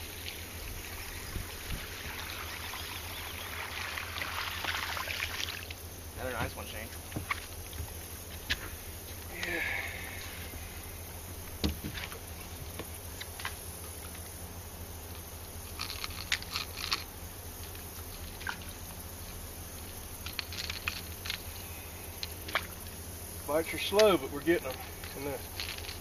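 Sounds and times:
steady low rumble: 0.0s - 4.2s, 5.6s - 26.0s
fishing lure hooks rattling: 15.7s - 17.1s, 20.2s - 21.4s, 24.7s - 26.0s.

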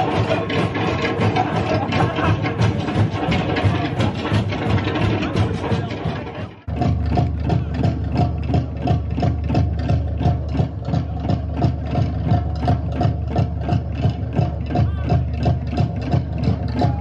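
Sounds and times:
fast drumming: 0.0s - 17.0s.

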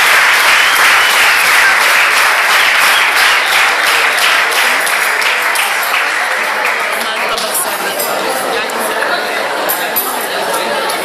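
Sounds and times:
crowd applause: 0.0s - 8.4s.

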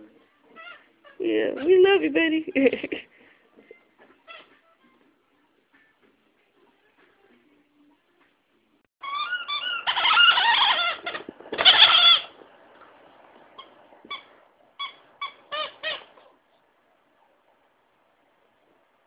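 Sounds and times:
squeaky toy chicken squawking: 9.0s - 12.3s, 14.1s - 16.3s.

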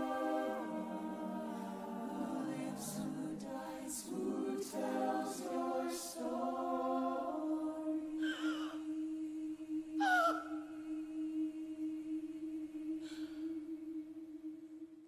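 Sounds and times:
choir singing sustained chords: 0.0s - 15.0s.

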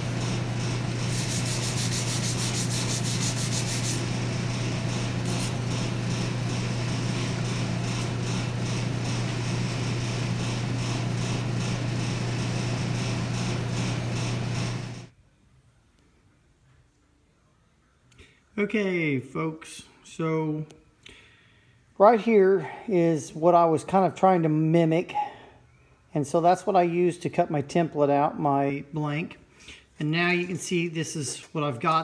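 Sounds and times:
forge air blower humming: 0.0s - 15.1s
wire brush scratching steel: 0.6s - 4.2s, 4.9s - 9.2s.

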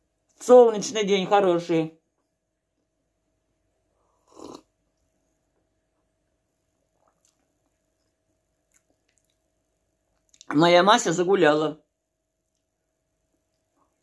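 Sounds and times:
sip from a mug: 4.0s - 4.8s.

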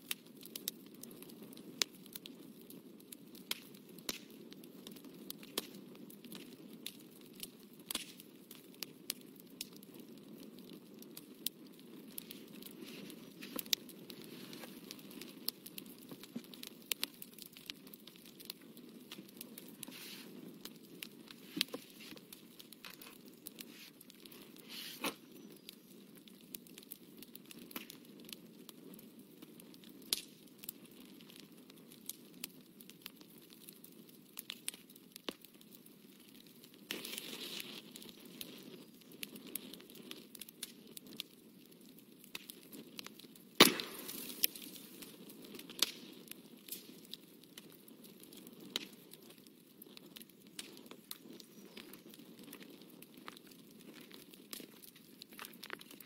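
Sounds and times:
rustle: 19.8s - 20.4s, 24.6s - 25.5s.

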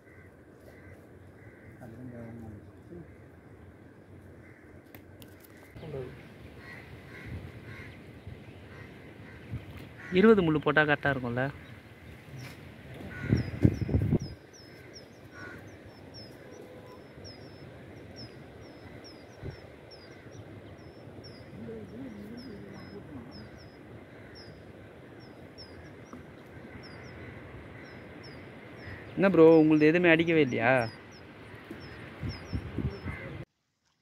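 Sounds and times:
small bird chirping: 11.6s - 33.2s.

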